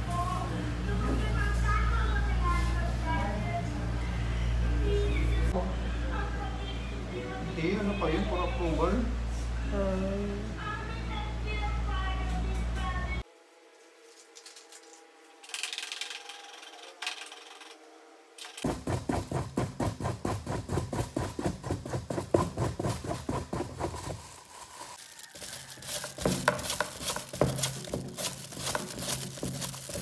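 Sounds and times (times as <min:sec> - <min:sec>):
spoon scraping a bowl: 0:24.1 - 0:30.0.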